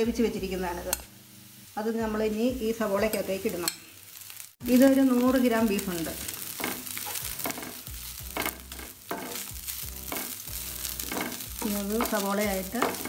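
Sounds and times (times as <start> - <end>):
faint frying hiss: 0.0 - 13.0
wooden spatula scraping a pan: 6.3 - 13.0.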